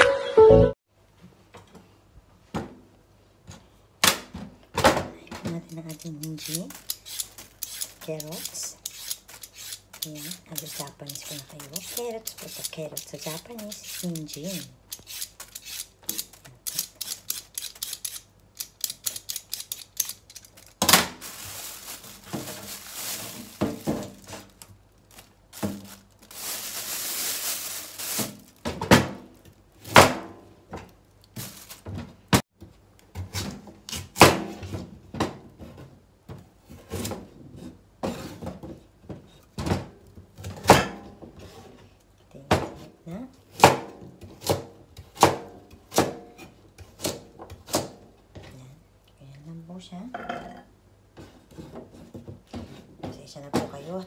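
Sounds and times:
scraping carrot: 5.9s - 28.3s.

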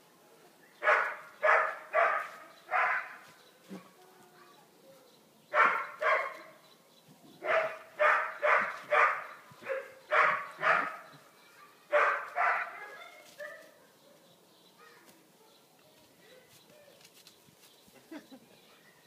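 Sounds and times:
dog barking: 0.8s - 3.2s, 5.5s - 6.5s, 7.4s - 11.1s, 11.9s - 13.8s.

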